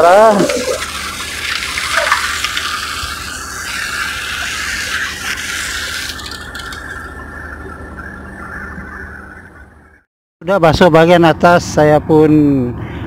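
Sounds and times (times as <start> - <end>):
water hose spraying on metal: 0.0 - 7.1.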